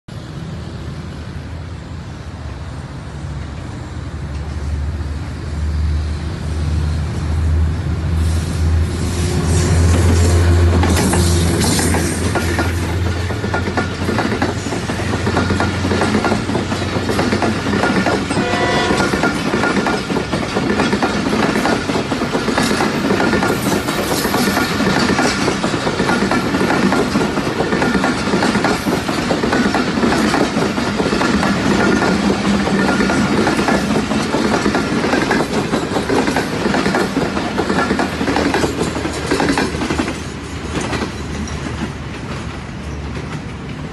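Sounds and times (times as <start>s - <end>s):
diesel locomotive engine hum: 0.1s - 43.9s
train wheels clattering over rail joints: 9.8s - 43.9s.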